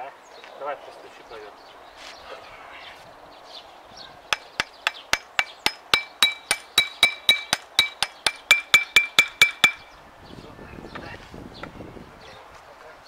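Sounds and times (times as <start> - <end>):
hammer tapping on steel: 4.3 - 9.9.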